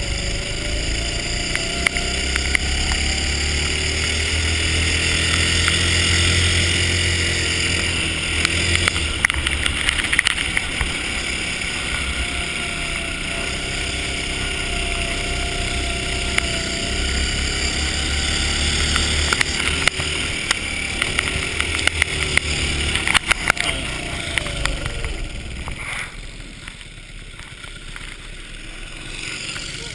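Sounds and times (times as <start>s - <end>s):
go-kart engine running: 0.0s - 29.9s
sharp clicks and knocks: 1.0s - 12.4s, 18.6s - 28.3s.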